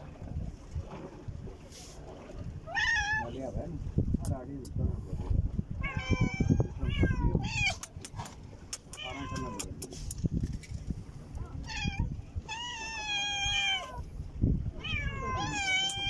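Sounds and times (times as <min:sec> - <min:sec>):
kittens meowing: 0:02.7 - 0:03.4, 0:05.8 - 0:07.8, 0:08.9 - 0:09.8, 0:11.5 - 0:14.0, 0:14.8 - 0:16.0.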